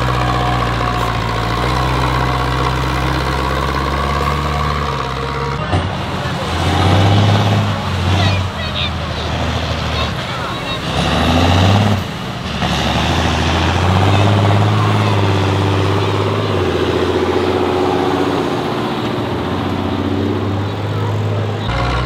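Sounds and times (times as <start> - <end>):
tractor diesel engine drone: 0.0 - 22.0.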